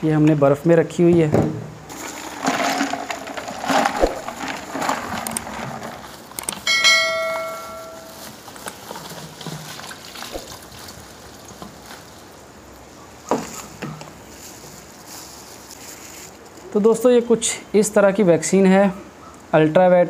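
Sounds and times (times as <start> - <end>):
ice chunks knocking: 1.9 - 10.7
plastic bag rustling: 1.9 - 12.4, 13.3 - 16.8
bell chime sound effect: 6.7 - 8.2.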